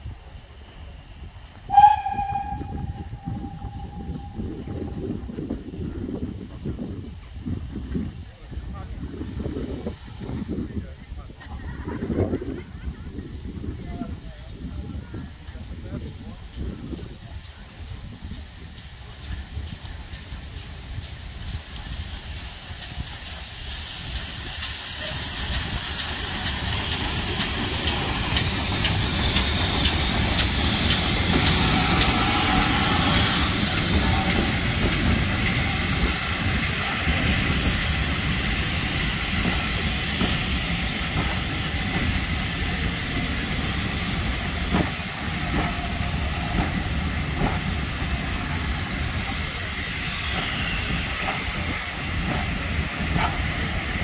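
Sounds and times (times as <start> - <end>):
steam locomotives hissing steam: 0.0 - 54.0
train wheels clicking over rail joints: 15.5 - 54.0.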